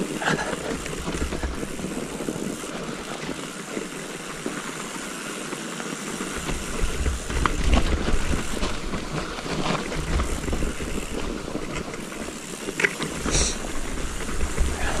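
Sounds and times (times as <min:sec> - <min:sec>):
bike clicks and rattles: 0:00.0 - 0:15.0
tyres rolling over snow: 0:00.0 - 0:15.0.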